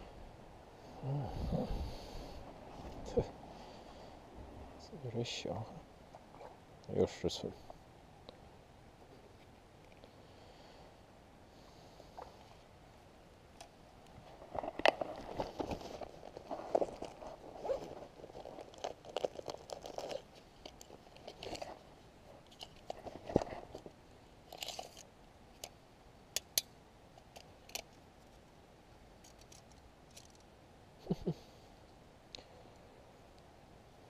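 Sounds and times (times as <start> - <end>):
rustling and crunching handling: 14.0 - 25.1.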